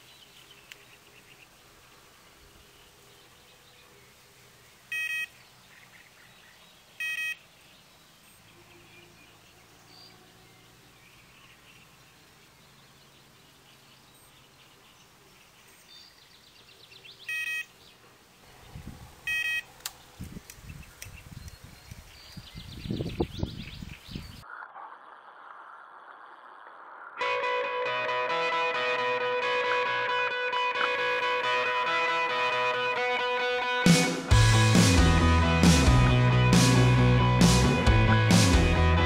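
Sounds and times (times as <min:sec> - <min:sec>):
bite alarm beeps: 0:04.9 - 0:05.3, 0:07.0 - 0:07.4, 0:17.3 - 0:17.7, 0:19.3 - 0:19.7.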